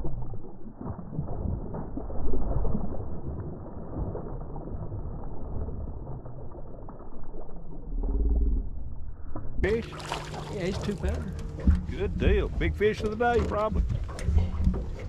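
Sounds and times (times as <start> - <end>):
fish thrashing and splashing: 9.6 - 15.0.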